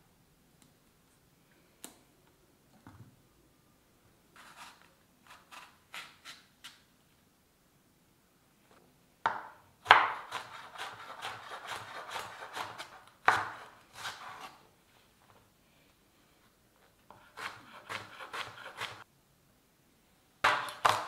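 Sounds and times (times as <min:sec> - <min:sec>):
knife cutting on wooden board: 0:09.9 - 0:14.6, 0:17.1 - 0:19.0, 0:20.5 - 0:21.0.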